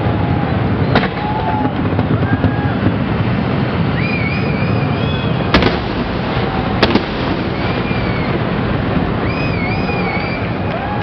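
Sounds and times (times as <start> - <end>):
steady low rumble: 0.0 - 11.0
firework shells bursting: 0.8 - 11.0
faint wavering whistles: 3.9 - 5.5, 7.6 - 8.4, 9.2 - 10.6.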